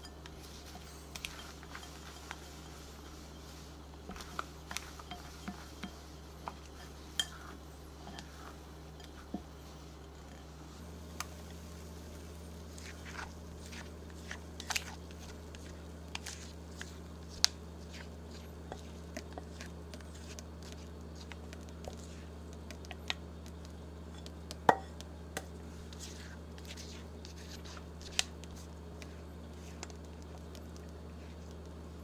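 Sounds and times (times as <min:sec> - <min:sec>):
steady low hum: 0:00.0 - 0:32.0
batter clicking and popping: 0:13.1 - 0:25.6, 0:29.7 - 0:31.8.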